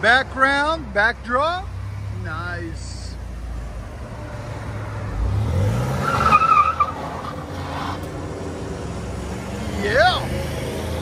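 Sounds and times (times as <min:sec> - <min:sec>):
car engine accelerating: 0:03.6 - 0:11.0.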